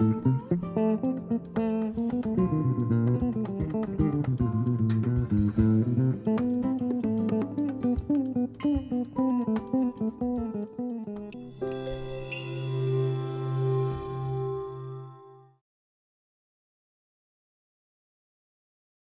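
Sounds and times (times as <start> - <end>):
bass line: 0.0 - 9.3
plucked strings music: 0.0 - 15.6.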